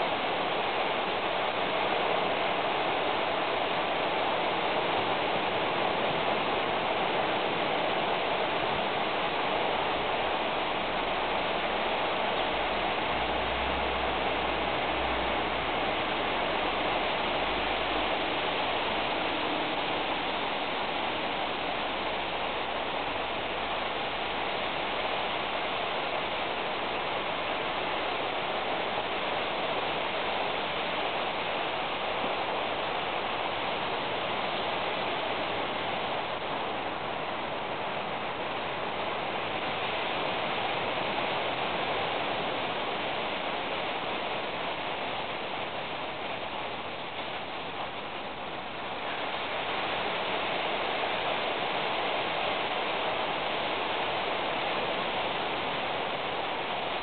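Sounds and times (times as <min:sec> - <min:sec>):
steady hiss: 0:00.0 - 0:57.0.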